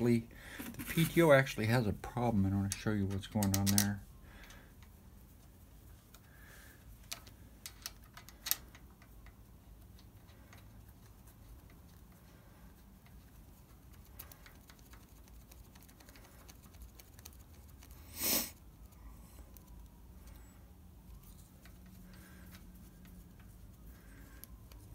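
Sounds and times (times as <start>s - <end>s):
handling noise: 0.5s - 1.4s
light clicks and taps on metal: 2.6s - 4.9s, 7.0s - 12.2s.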